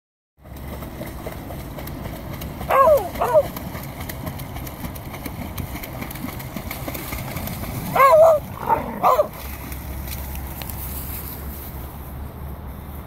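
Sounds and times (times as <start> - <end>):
dogs splashing in water: 0.4 - 10.9
dog whining yelps: 2.7 - 3.5, 7.9 - 9.3.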